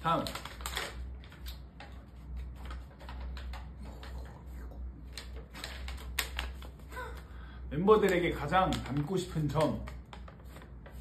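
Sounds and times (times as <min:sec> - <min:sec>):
low steady hum: 0:00.0 - 0:09.0.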